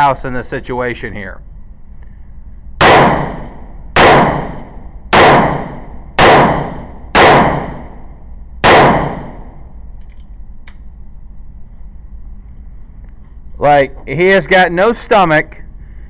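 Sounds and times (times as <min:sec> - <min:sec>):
revolver shots echoing: 0:02.8 - 0:09.6.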